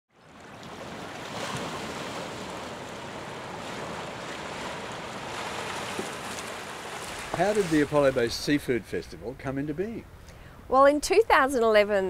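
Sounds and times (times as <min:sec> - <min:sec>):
wind: 0:00.1 - 0:12.0
waves washing: 0:00.2 - 0:09.5.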